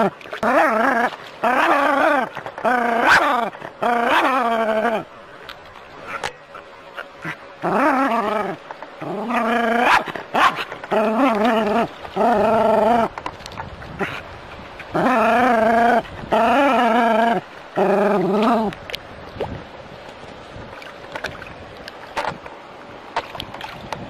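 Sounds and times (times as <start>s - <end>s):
dog growl-barking: 0.0s - 5.1s, 7.2s - 13.1s, 15.0s - 18.7s.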